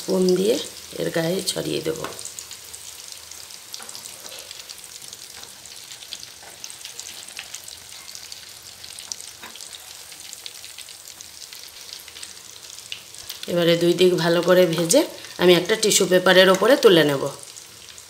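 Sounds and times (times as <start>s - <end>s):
oil sizzling and crackling: 0.0s - 18.0s.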